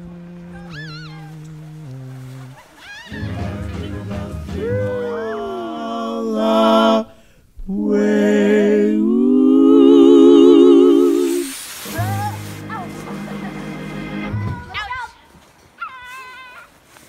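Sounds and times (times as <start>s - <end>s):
person singing with vibrato: 0.0s - 13.4s.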